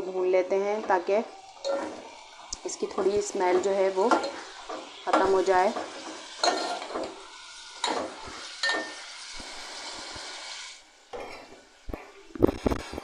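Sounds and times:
meat sizzling in hot oil: 0:00.0 - 0:12.8
steel ladle scraping a pot: 0:00.9 - 0:09.4.

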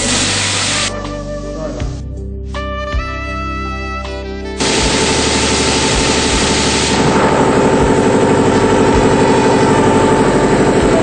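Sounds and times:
loud air hiss: 0:00.0 - 0:01.0, 0:04.6 - 0:10.8
air compressor chugging: 0:04.6 - 0:11.0.

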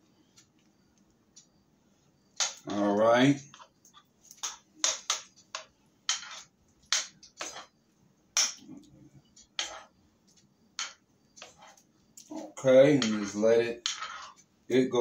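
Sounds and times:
metal spoon scraping a skillet: 0:03.4 - 0:07.8, 0:09.6 - 0:10.0, 0:10.8 - 0:14.5.

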